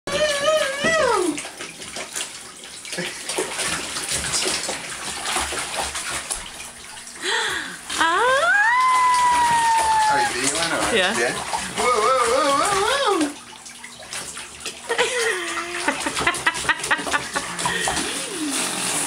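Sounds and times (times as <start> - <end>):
bath water splashing: 0.1 - 19.0
high voice calling out: 8.0 - 10.5.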